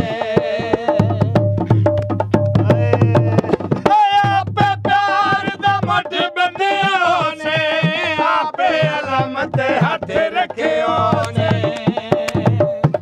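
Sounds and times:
person singing folk song: 0.0s - 1.9s, 2.6s - 13.0s
hand drum beats: 0.0s - 13.0s.

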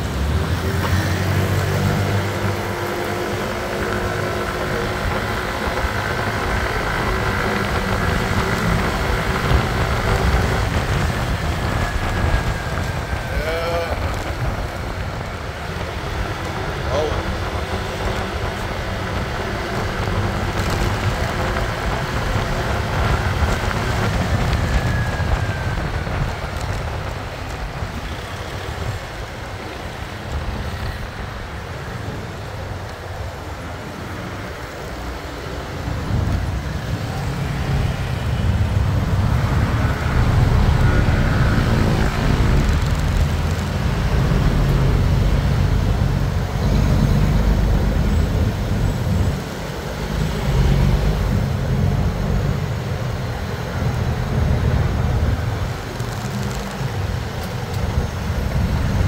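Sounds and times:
motorcycle engine: 0.1s - 29.1s.

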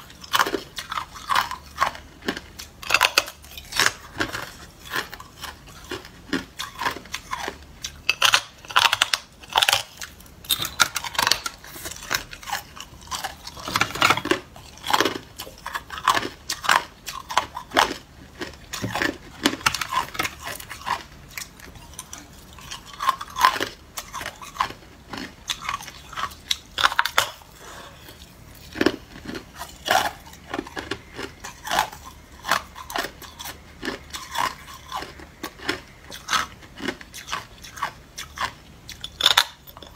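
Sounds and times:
ice being bitten and chewed: 0.0s - 39.9s.

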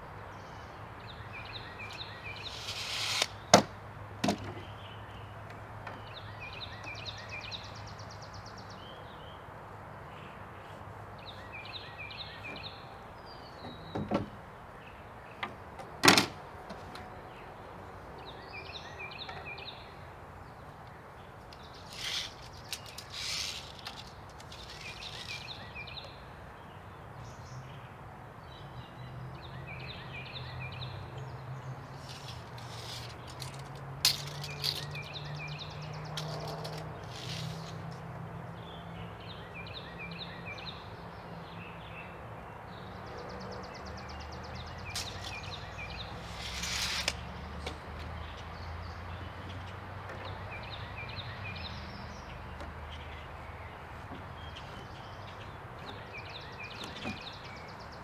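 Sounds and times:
small bird chirping: 21.6s - 26.2s, 43.8s - 47.1s.

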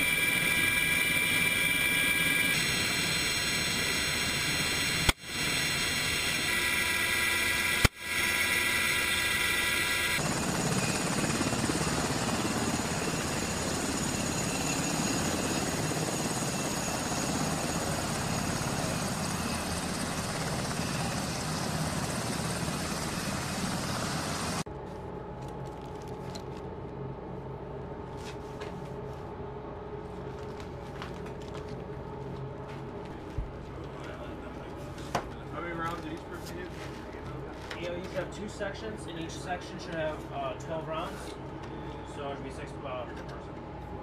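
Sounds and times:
helicopter rotor and turbine noise: 0.0s - 24.7s.

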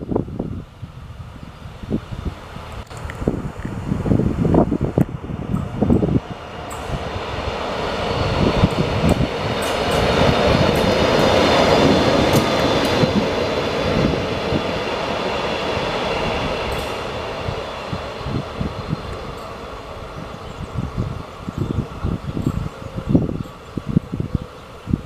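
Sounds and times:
electric locomotive passing: 0.0s - 25.0s
wind buffeting microphone: 0.0s - 25.0s.

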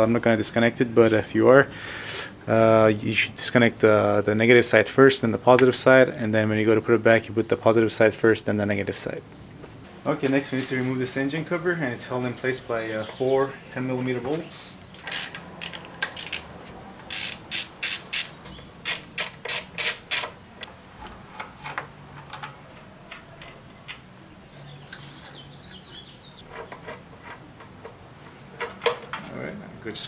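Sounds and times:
socket ratchet clicking: 15.0s - 20.7s.

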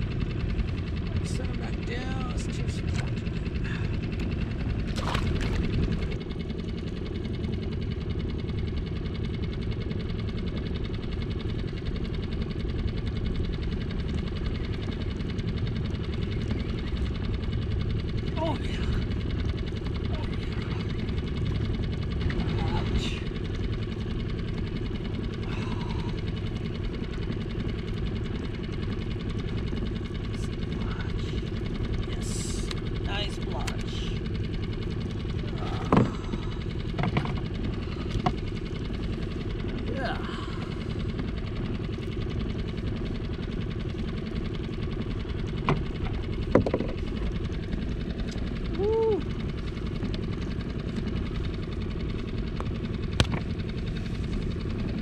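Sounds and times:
small boat engine idling: 0.0s - 55.0s
water splash beside boat hull: 4.9s - 6.2s.

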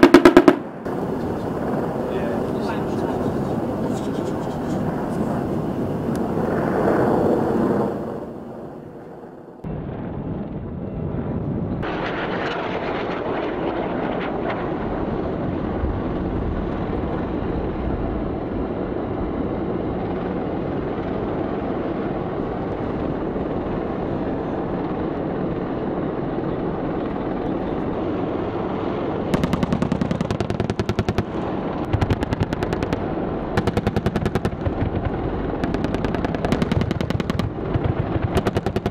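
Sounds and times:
automatic gunfire bursts: 0.0s - 0.7s, 29.3s - 38.9s
helicopter: 0.0s - 38.9s
steady rushing noise: 0.0s - 38.9s.

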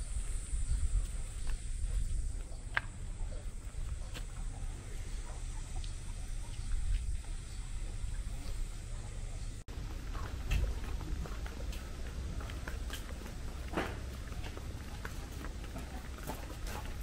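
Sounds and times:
wind rumble on microphone: 0.0s - 4.2s, 5.1s - 12.6s.

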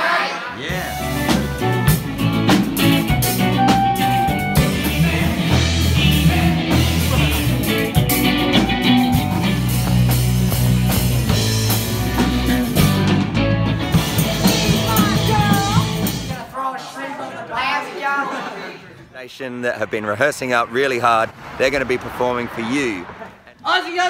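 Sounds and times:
rock band playing: 0.7s - 16.4s.

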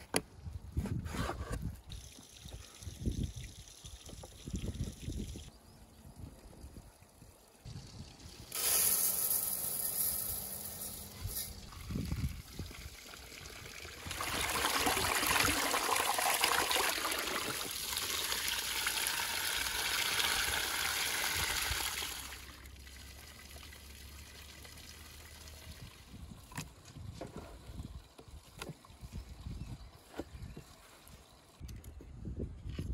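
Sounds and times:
dry rice poured into a basin: 8.5s - 11.5s
water splashing into a basin: 11.7s - 26.1s.

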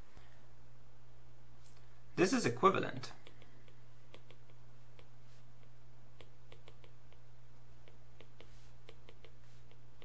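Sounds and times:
steady low hum: 0.0s - 10.0s
stylus clicking on tablet screen: 3.2s - 10.0s.

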